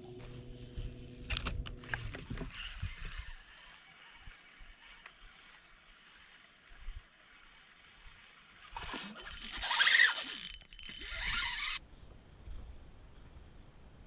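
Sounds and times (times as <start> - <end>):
spinning reel retrieving: 0.7 - 11.8.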